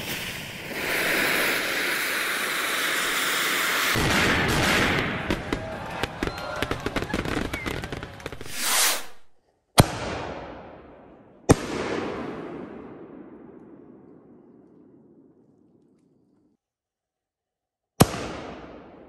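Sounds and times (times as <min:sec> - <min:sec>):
firework whoosh: 0:00.0 - 0:05.1, 0:08.4 - 0:09.4
firework bangs echoing: 0:00.0 - 0:08.9.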